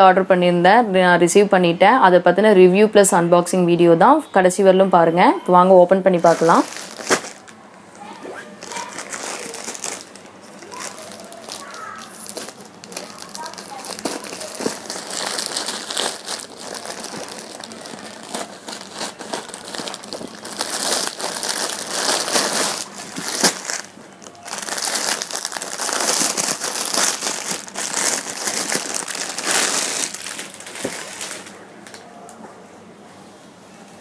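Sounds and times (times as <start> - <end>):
plastic bags crinkling: 5.9 - 32.0.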